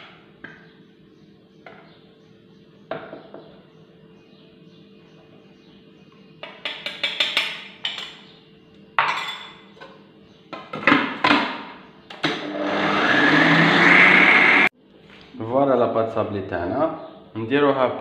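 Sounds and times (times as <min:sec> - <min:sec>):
food processor motor running: 0:12.2 - 0:14.7.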